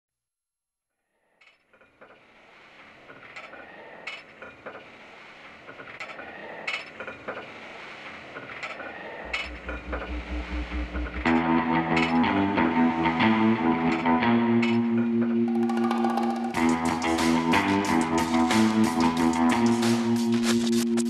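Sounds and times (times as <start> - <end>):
throbbing low bass pulse: 9.6 - 11.7
rock band playing: 11.2 - 20.4.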